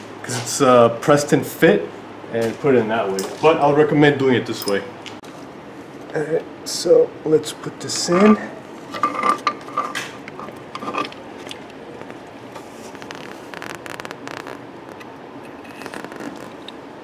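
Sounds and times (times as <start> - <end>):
metal parts clicking and scraping: 8.9 - 11.6
soft scratching: 12.6 - 14.6.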